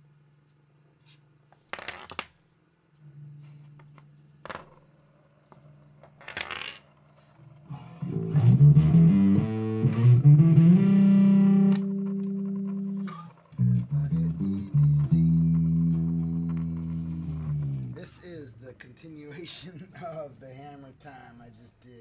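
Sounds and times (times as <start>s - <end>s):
bass line: 7.7s - 18.1s
guitar playing: 7.7s - 18.1s.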